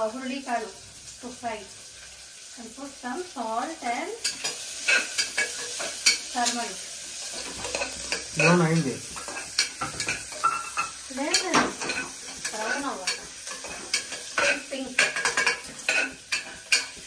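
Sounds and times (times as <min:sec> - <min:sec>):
onions sizzling in oil: 0:00.0 - 0:17.0
spoon scraping a metal pot: 0:04.2 - 0:06.6, 0:07.3 - 0:17.0.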